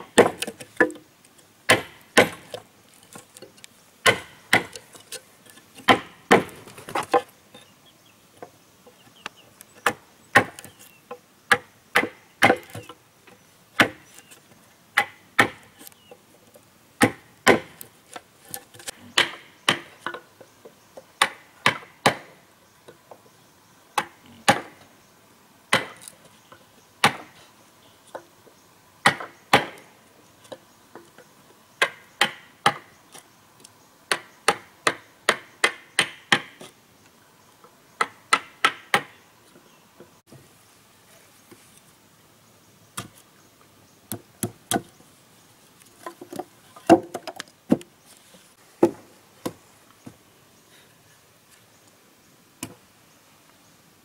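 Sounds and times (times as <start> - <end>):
hand tool striking wood: 0.0 - 1.0, 1.7 - 7.3, 9.8 - 10.8, 11.5 - 12.9, 13.8 - 14.3, 15.0 - 15.8, 17.0 - 20.2, 34.1 - 36.7, 48.8 - 49.6.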